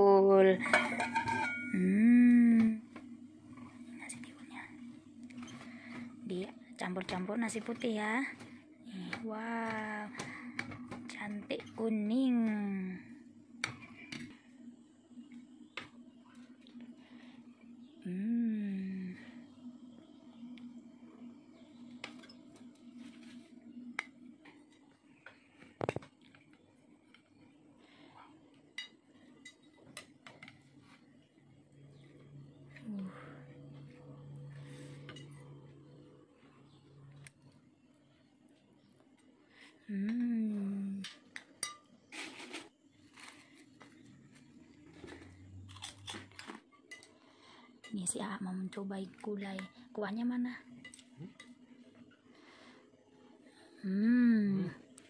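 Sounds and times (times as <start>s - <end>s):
low steady hum: 0.0s - 55.0s
spoons scraping and clinking on glass: 0.6s - 1.8s
crackers crunching: 42.2s - 44.0s, 45.0s - 46.7s.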